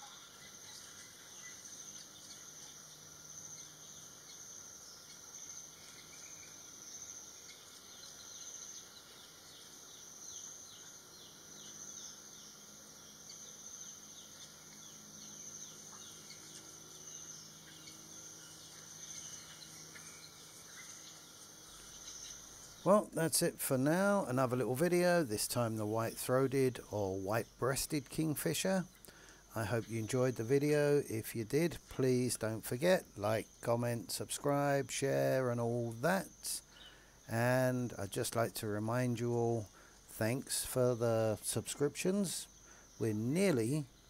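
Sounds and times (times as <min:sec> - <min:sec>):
faint bird chirps: 0:00.0 - 0:23.2, 0:34.4 - 0:44.0
insects droning: 0:00.0 - 0:44.0.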